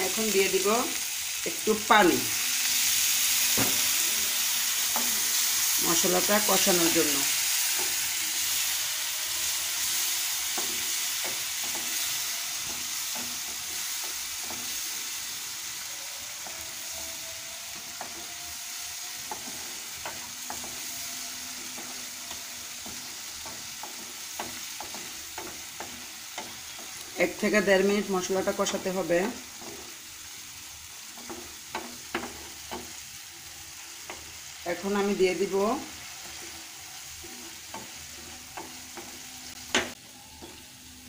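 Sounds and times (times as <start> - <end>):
masala sizzling in a frying pan: 0.0 - 41.0
wooden spatula scraping a pan: 31.0 - 39.9.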